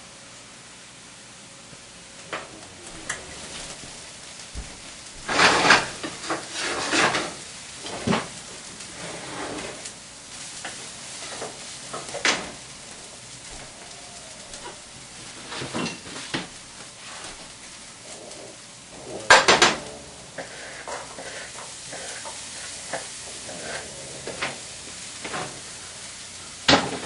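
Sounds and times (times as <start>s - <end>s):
food sizzling in a frying pan: 0.1s - 27.0s
pans and utensils knocking: 19.2s - 21.0s.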